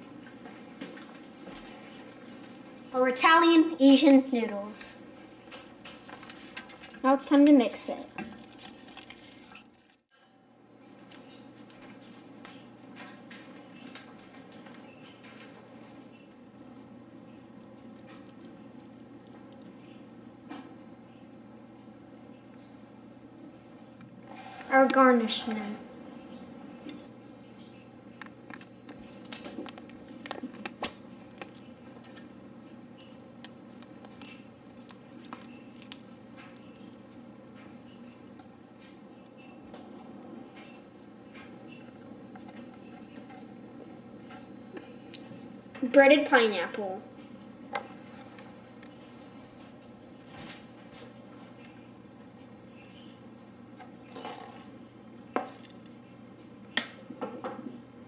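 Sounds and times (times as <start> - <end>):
low room hum: 0.0 - 58.0.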